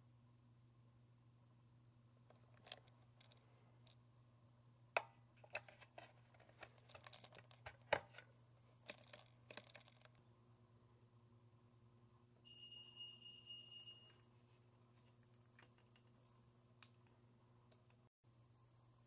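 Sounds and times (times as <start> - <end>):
batteries clicking in plastic charger: 5.4 - 10.2.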